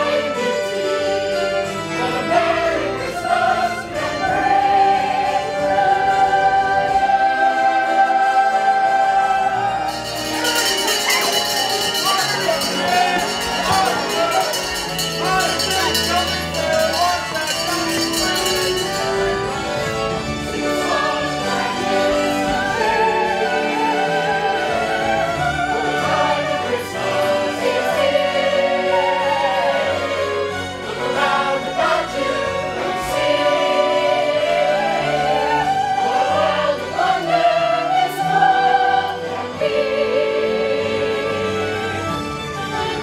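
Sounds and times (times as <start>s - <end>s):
chorus singing: 0.0s - 43.0s
musical backing: 0.0s - 43.0s.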